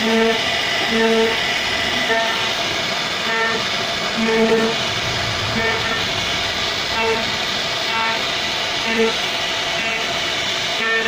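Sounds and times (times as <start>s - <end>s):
short humming tones: 3.2s - 10.1s.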